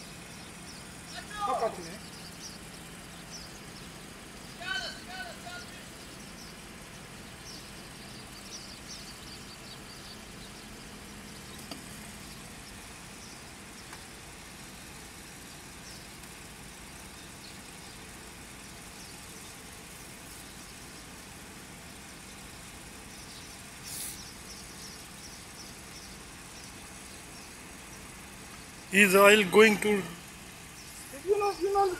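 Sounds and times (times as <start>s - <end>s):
distant machinery rumble: 0.0s - 31.9s
brief hiss: 23.8s - 24.4s.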